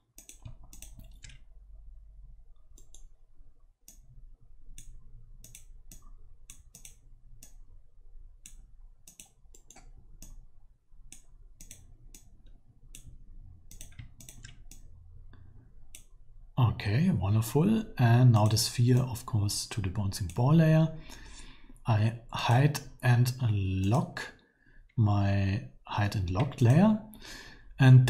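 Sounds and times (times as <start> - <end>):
faint low hum: 0.0 - 28.0
computer mouse clicking: 0.1 - 1.5, 2.6 - 3.2, 3.9 - 4.1, 4.7 - 7.7, 8.4 - 14.9, 15.9 - 16.2, 18.4 - 19.1.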